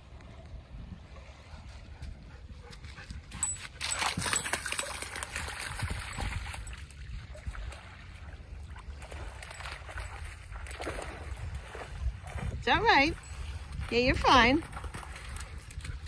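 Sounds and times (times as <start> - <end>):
wind rumble on microphone: 0.0 - 16.0
dog splashing in water: 3.4 - 12.6.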